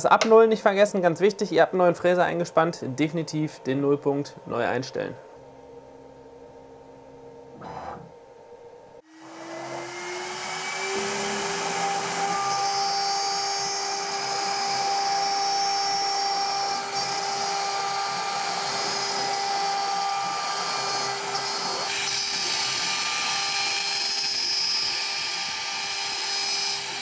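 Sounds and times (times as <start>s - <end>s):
router spindle whine: 7.5s - 8.2s, 9.0s - 27.0s
cutter hissing through wood: 9.0s - 27.0s.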